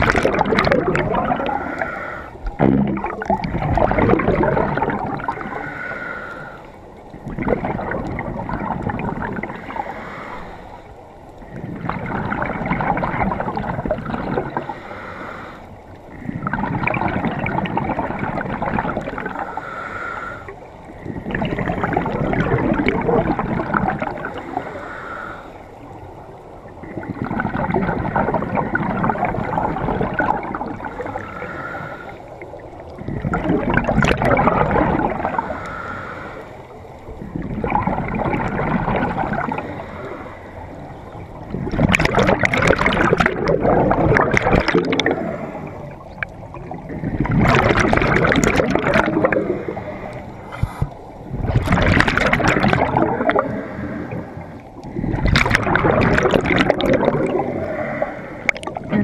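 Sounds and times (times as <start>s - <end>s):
rumbling exhaled bubbles: 0.0s - 6.1s, 7.0s - 10.4s, 11.4s - 14.9s, 16.0s - 19.8s, 20.8s - 24.7s, 26.4s - 36.0s, 36.7s - 59.0s
hissing regulator inhalation: 49.4s - 51.1s.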